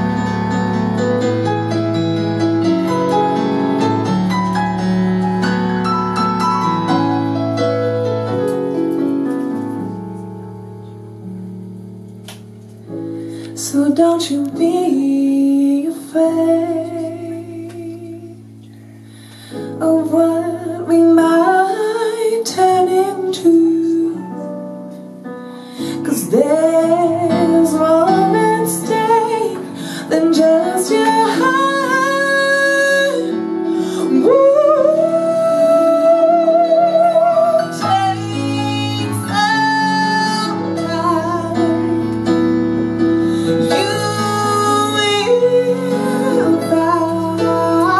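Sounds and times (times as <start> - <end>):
woman singing jazz: 13.5 - 18.6, 19.6 - 24.9, 25.8 - 47.9.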